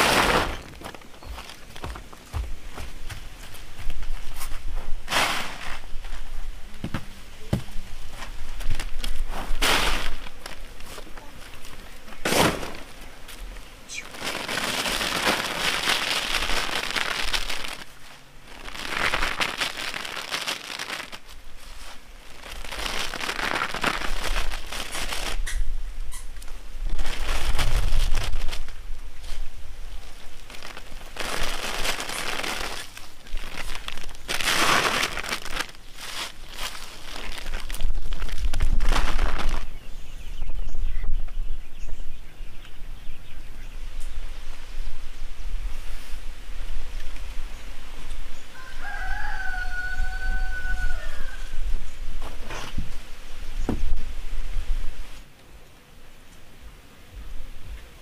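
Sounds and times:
plastic tarp crinkling: 0:00.0 - 0:01.9, 0:08.4 - 0:13.0, 0:13.9 - 0:25.5, 0:26.9 - 0:29.4, 0:30.0 - 0:39.7
dried strips pattering onto tarp: 0:00.0 - 0:25.6, 0:26.4 - 0:39.7.

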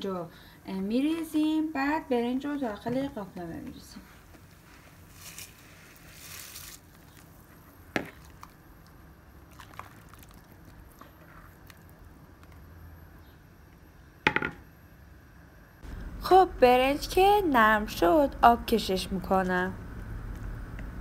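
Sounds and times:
rice grains pouring and splashing: 0:05.0 - 0:07.3, 0:09.5 - 0:11.0.

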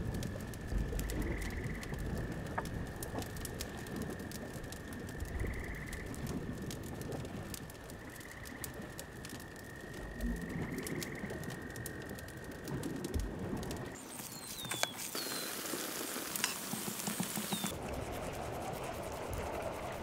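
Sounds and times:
wood fire crackling: 0:00.0 - 0:20.0.

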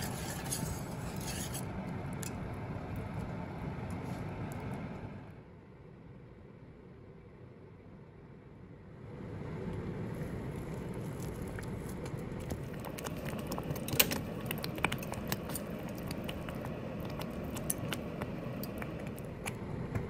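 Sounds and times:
congee bubbling in a pot: 0:09.1 - 0:20.0
thick bubbles popping: 0:11.1 - 0:20.0.

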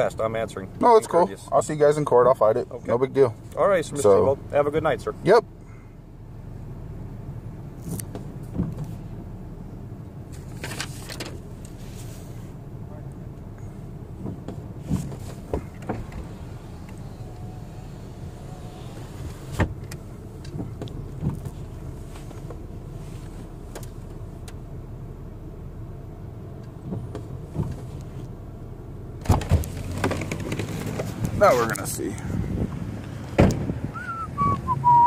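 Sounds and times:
car interior low hum: 0:00.0 - 0:35.0
handling clicks and knocks: 0:29.2 - 0:31.9.

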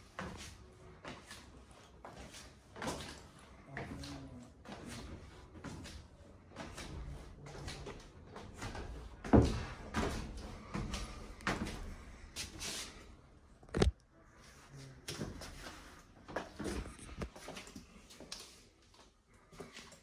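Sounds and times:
footsteps on wooden stairs: 0:02.0 - 0:12.0.

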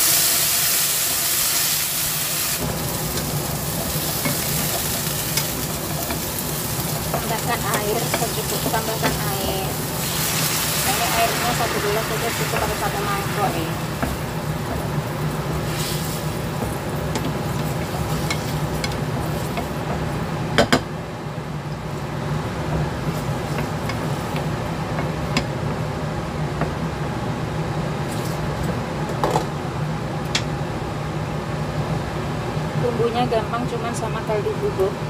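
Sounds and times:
water sizzling in a frying pan: 0:00.0 - 0:20.3
low steady hum: 0:02.6 - 0:35.0
wooden spatula stirring: 0:03.1 - 0:10.1, 0:10.7 - 0:20.2, 0:22.8 - 0:25.5.

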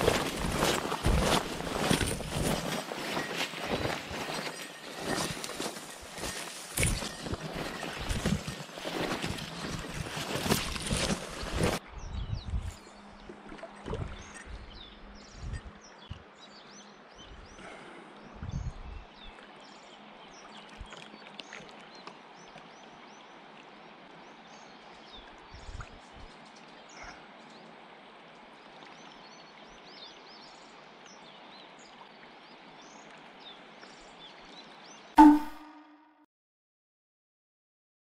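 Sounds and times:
river water rushing: 0:00.0 - 0:11.8
short loud tone: 0:35.2 - 0:36.3.

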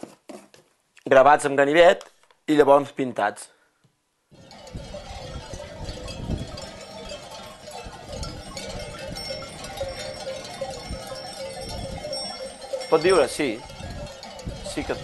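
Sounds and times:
sheep bells jangling: 0:04.4 - 0:15.0.

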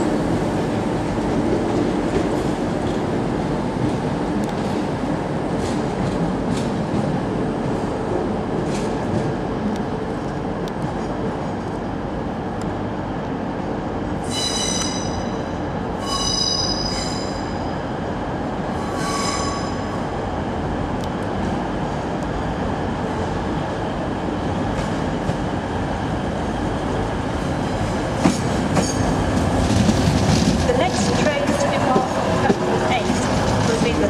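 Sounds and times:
train rumble: 0:00.0 - 0:34.0
train wheels squealing on rails: 0:14.2 - 0:17.7, 0:18.7 - 0:20.0, 0:28.2 - 0:29.2.

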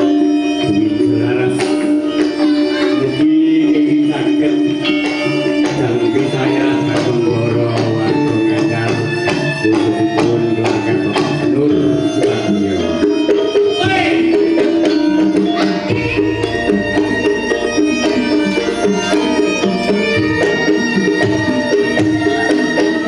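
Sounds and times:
hand drum strikes: 0:04.8 - 0:23.0
metallophone and gong tones: 0:10.3 - 0:23.0.

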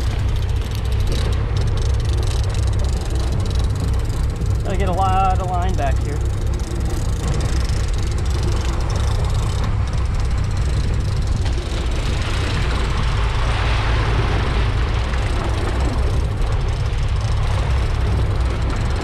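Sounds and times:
boat engine running: 0:00.0 - 0:19.0
water rushing past hull: 0:00.0 - 0:19.0
wind on microphone: 0:00.0 - 0:19.0.

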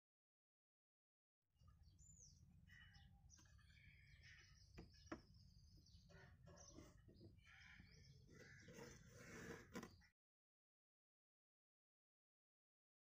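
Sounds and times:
faint birds chirping: 0:01.6 - 0:10.2.

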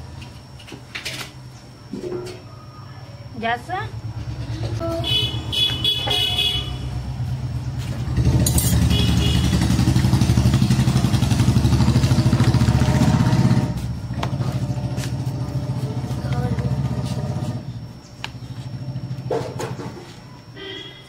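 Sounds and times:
engine pulsing rumble: 0:06.8 - 0:19.9.

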